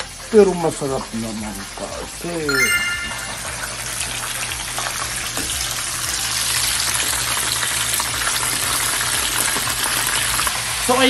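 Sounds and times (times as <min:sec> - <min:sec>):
oil sizzling and crackling: 0:03.4 - 0:11.0.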